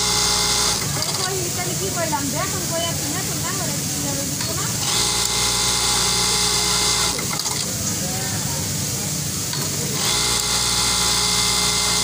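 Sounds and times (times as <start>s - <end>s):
sewing machines running: 0.0s - 7.8s, 9.5s - 12.0s.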